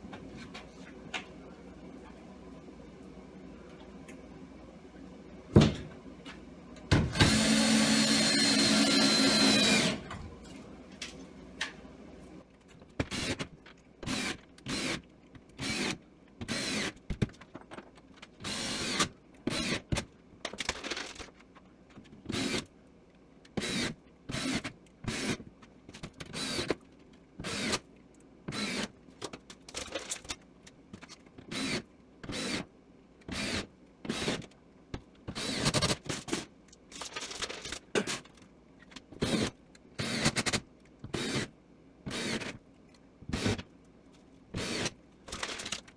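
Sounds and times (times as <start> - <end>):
cordless drill driving a screw: 7.2 - 10.0.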